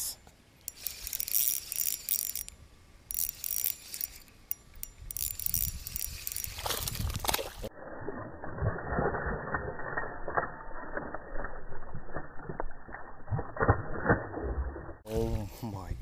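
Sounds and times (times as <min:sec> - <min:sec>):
fishing reel clicking: 0:00.6 - 0:06.7.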